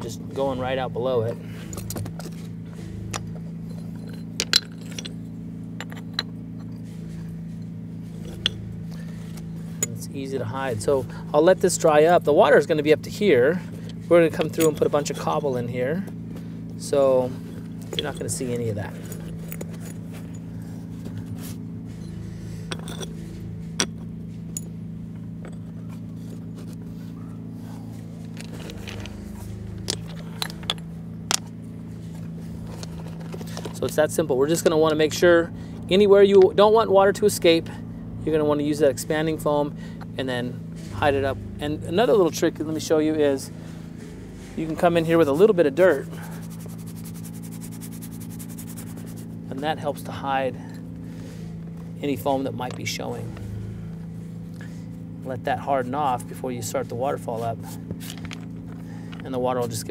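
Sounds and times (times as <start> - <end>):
steady low hum: 0.0 - 59.9
stones clacking together: 4.0 - 5.2.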